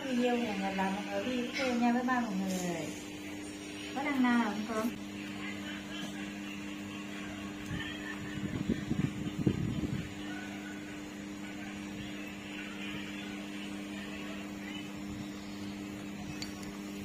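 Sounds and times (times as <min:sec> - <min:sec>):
electrical mains hum: 0:00.0 - 0:17.0.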